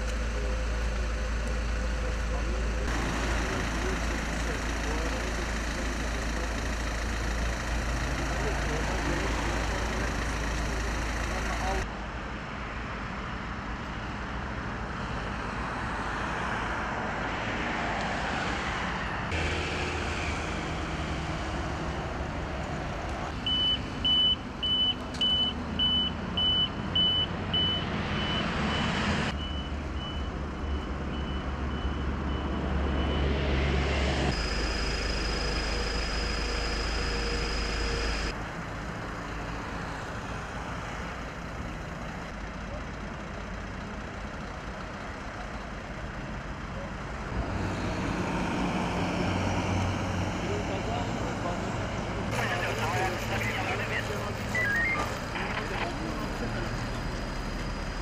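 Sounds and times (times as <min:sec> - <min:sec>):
road traffic: 0:00.0 - 0:58.0
reversing alarm beeping: 0:23.4 - 0:33.4, 0:34.3 - 0:38.3, 0:52.3 - 0:55.7.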